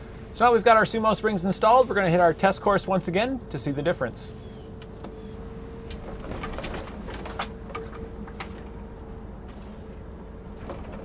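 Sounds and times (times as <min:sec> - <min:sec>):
vehicle rolling low rumble: 0:00.0 - 0:11.0
chassis knocks and rattles: 0:05.8 - 0:09.6, 0:10.4 - 0:11.0.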